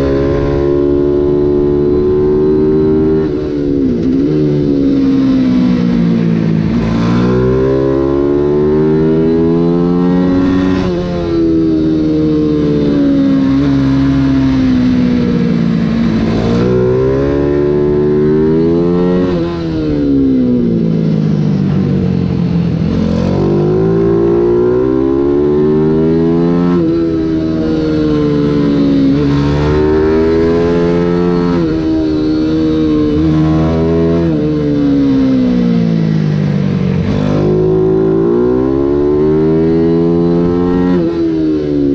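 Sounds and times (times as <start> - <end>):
race bike engine revving: 22.8 - 35.6.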